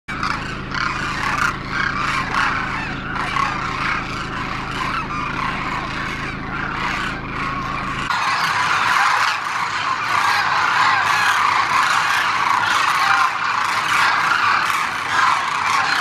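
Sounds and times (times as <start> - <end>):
flock of cranes calling: 0.1 - 16.0.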